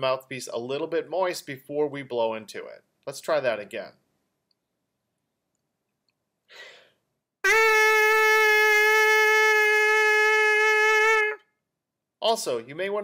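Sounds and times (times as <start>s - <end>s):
person breathing in: 6.5s - 7.0s
trumpet mouthpiece buzzing: 7.4s - 11.4s.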